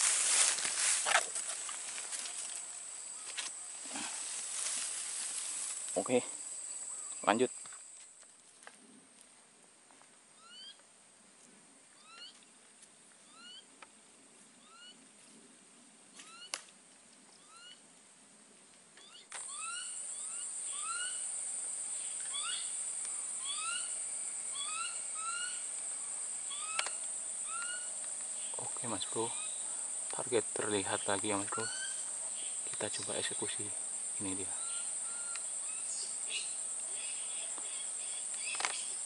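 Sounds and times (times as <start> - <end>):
insects buzzing: 0.0 - 8.8, 19.0 - 39.0
animal chirping calls: 19.0 - 21.2, 22.2 - 22.7, 23.4 - 25.7, 26.5 - 27.9, 31.5 - 32.1.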